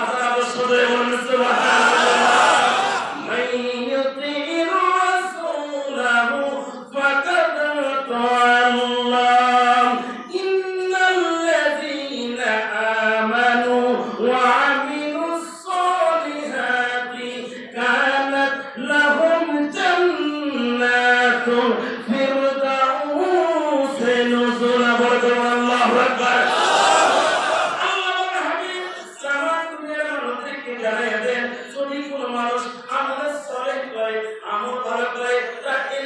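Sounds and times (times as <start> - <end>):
man chanting into a microphone: 0.0 - 26.6, 27.7 - 36.0.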